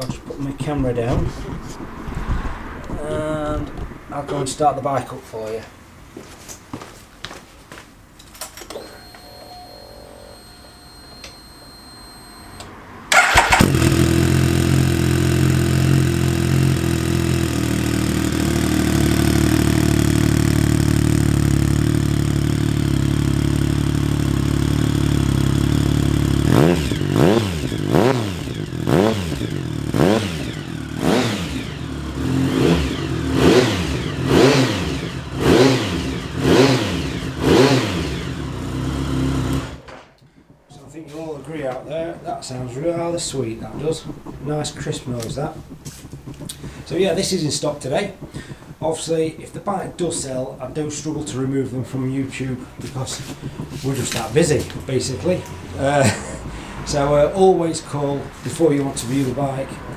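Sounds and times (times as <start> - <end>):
motorcycle engine starting: 12.4 - 59.9
motorcycle engine revving: 13.1 - 40.0, 40.9 - 59.9
motorcycle engine idling: 13.1 - 40.5, 42.0 - 59.9.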